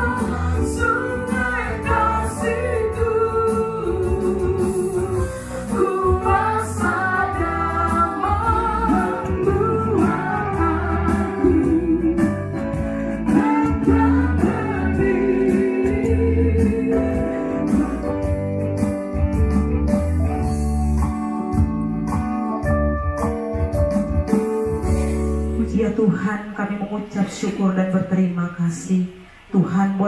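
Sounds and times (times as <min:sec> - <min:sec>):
woman singing a hymn: 0:00.0 - 0:12.4, 0:13.3 - 0:18.0
electronic keyboard: 0:00.0 - 0:30.0.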